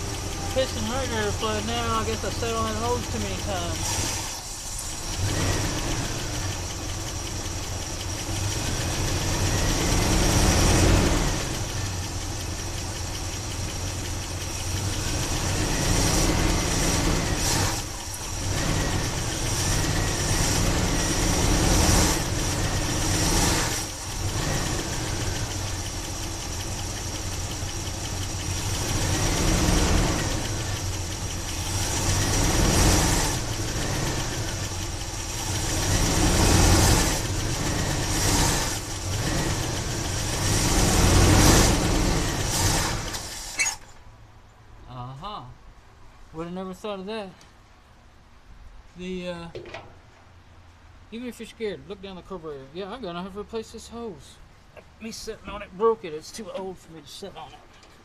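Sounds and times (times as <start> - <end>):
engine revving and settling: 0.0 - 43.9.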